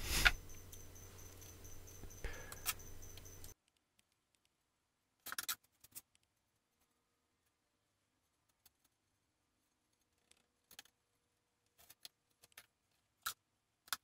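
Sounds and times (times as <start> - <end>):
trowel scraping cement: 0.0 - 0.4
low background hum: 0.0 - 3.6.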